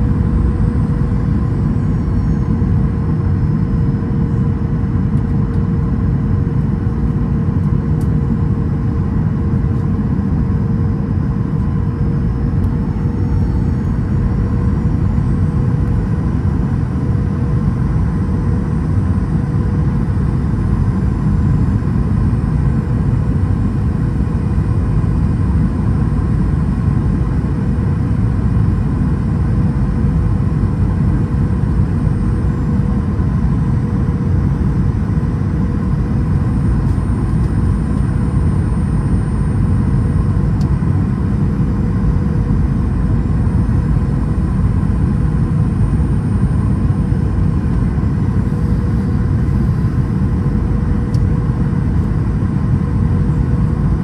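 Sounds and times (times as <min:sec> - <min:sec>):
airliner cabin engine rumble: 0:00.0 - 0:54.0
thin steady hum: 0:30.0 - 0:54.0.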